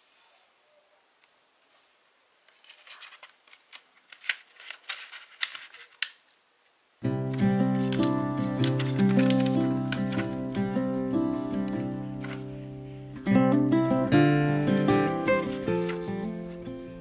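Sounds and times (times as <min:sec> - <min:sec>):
paper being folded and creased: 0:02.5 - 0:06.1, 0:07.7 - 0:10.6, 0:11.7 - 0:12.6, 0:15.4 - 0:16.6
background music: 0:07.1 - 0:17.0.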